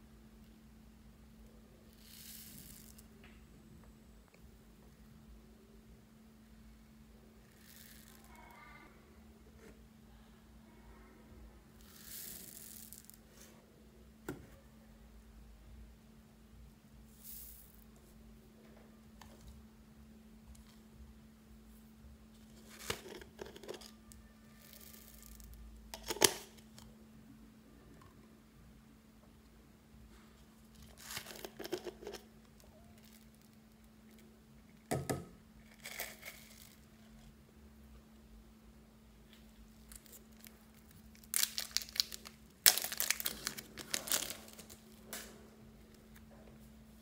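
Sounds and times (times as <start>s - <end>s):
plastic tube rattling: 22.6s - 24.0s
plastic packet crinkling: 30.8s - 32.3s, 39.9s - 45.3s.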